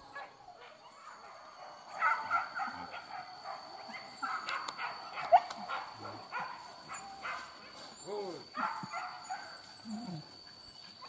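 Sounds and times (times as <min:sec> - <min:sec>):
dog yelping: 0:00.0 - 0:08.0
dogs barking and yipping: 0:00.0 - 0:11.0.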